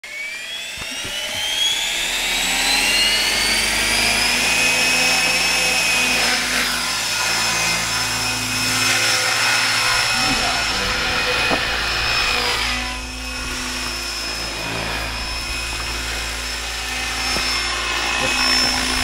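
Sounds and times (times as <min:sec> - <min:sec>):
model helicopter rotor whine: 0:00.0 - 0:19.0.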